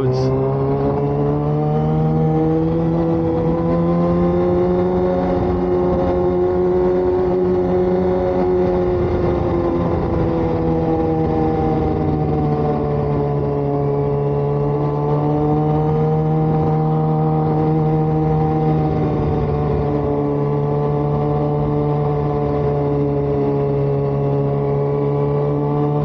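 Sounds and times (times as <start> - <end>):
motorcycle engine cruising: 0.0 - 26.0
road and air noise: 0.0 - 26.0.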